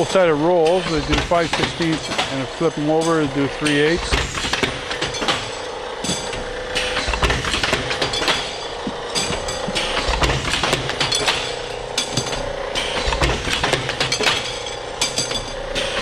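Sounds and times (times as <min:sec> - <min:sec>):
machine hum: 0:00.0 - 0:16.0
metal tubes clanking into bin: 0:00.0 - 0:16.0.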